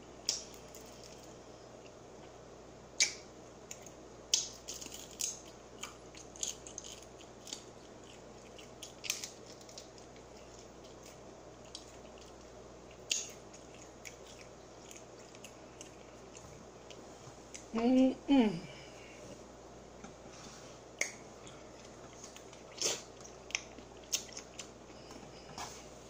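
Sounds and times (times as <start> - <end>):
chewing: 3.0 - 17.7, 21.0 - 25.8.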